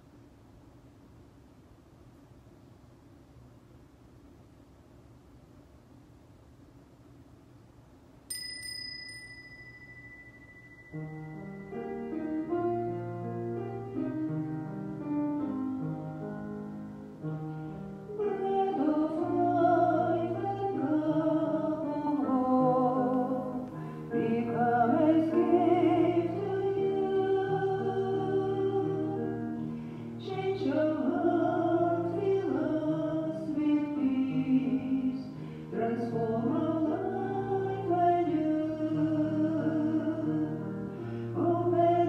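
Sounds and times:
bell ringing: 8.3s - 12.5s
person singing a hymn: 18.1s - 42.0s.

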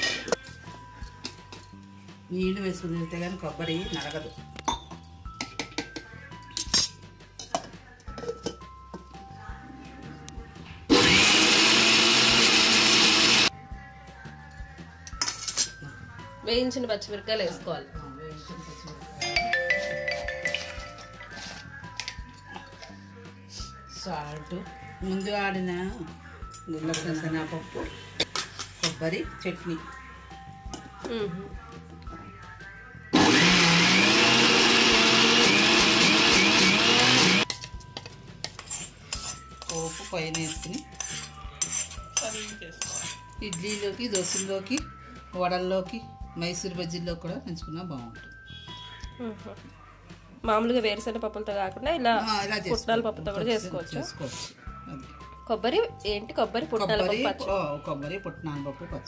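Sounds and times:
mixer grinder running: 10.9s - 13.5s, 33.2s - 37.4s.

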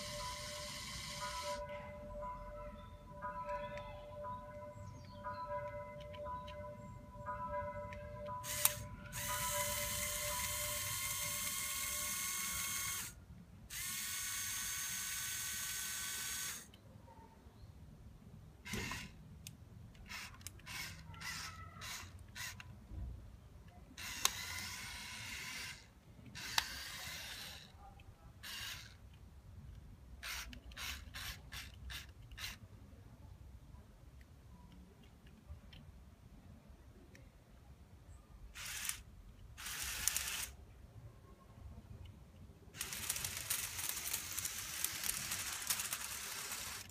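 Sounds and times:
small electric motors whining: 0.0s - 1.6s, 8.4s - 16.7s, 20.1s - 22.6s, 24.0s - 27.7s, 28.4s - 29.0s, 38.6s - 39.0s, 39.6s - 40.5s, 42.8s - 46.9s.

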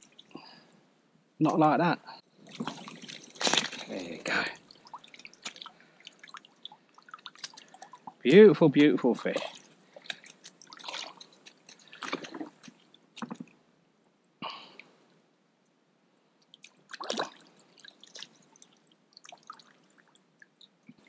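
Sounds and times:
splashes in muddy water: 2.4s - 8.1s, 9.2s - 12.9s, 16.6s - 18.4s.

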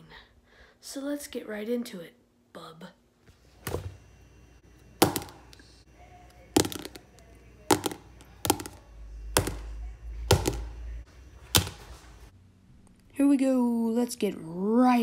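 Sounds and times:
pens tapping onto sketchbook: 6.6s - 7.1s, 7.7s - 8.8s, 10.3s - 10.7s.

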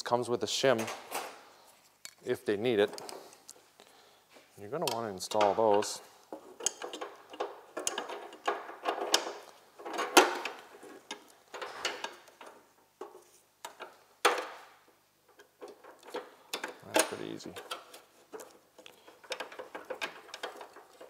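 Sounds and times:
metal parts clicking and knocking: 4.8s - 14.6s, 15.3s - 21.0s.

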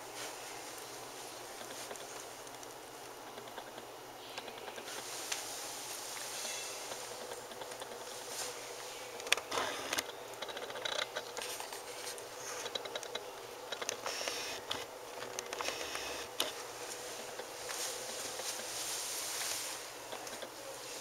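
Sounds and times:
faint steady hum: 0.0s - 21.0s
puppies rustling on blanket: 4.8s - 9.1s, 16.4s - 20.0s
small clicks and taps: 9.2s - 16.5s.

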